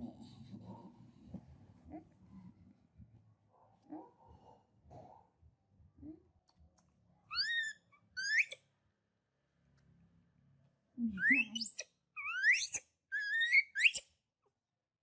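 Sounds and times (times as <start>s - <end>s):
baby monkey high-pitched calls: 7.3s - 8.6s, 11.2s - 14.0s.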